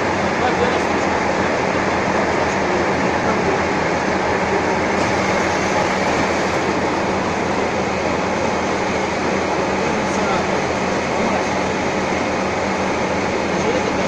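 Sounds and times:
metal lathe running: 0:04.0 - 0:10.1.

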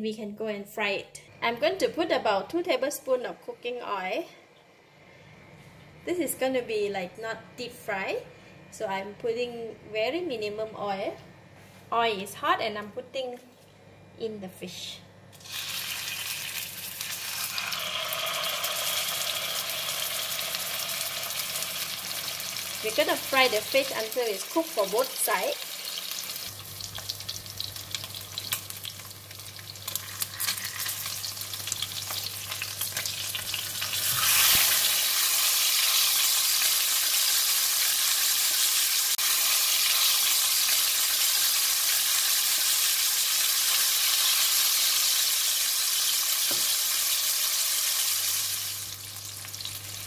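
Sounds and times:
fish sizzling in oil: 0:15.4 - 0:50.0.

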